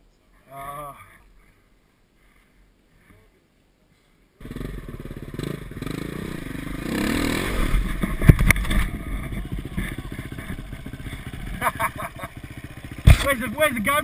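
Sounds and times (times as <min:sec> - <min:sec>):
dirt bike engine revving: 0:04.4 - 0:14.0.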